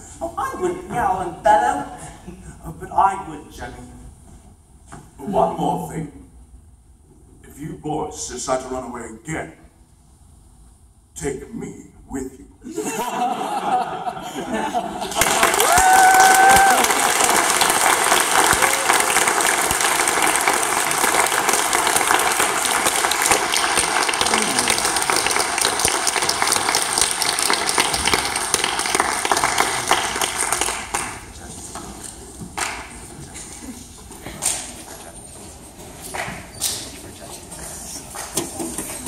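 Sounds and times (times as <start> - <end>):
audience applauding: 14.8 - 31.5.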